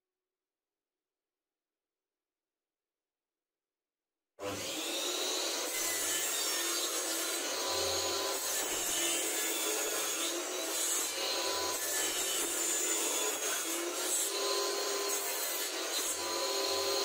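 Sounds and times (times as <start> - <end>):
table saw cutting wood: 4.4 - 17.0.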